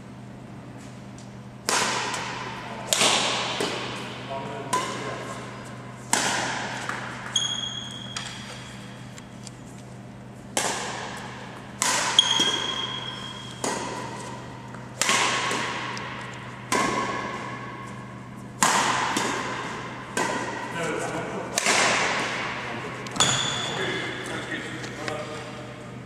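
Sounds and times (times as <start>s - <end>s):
badminton racket hitting shuttlecock: 1.6s - 4.0s, 4.7s - 5.2s, 6.0s - 9.0s, 10.5s - 20.7s, 21.5s - 22.6s
shoe squeaks: 7.3s - 9.3s, 12.2s - 13.6s, 23.2s - 24.0s.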